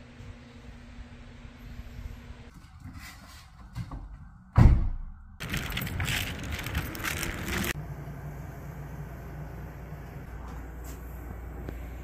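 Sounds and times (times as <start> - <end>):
outdoor street noise: 0.0 - 12.0
steady low hum: 6.2 - 12.0.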